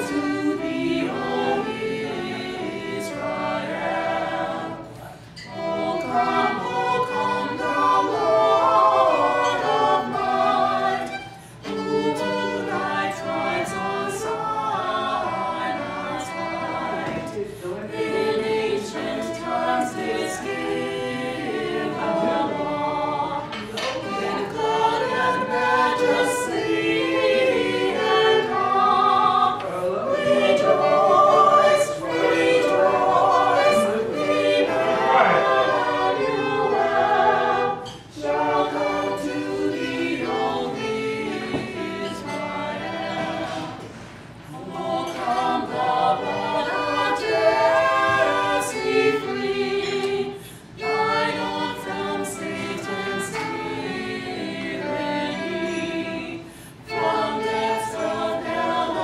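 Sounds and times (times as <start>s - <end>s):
group of singers: 0.0s - 59.0s
violin: 0.0s - 59.0s
singers breathing: 56.4s - 56.8s.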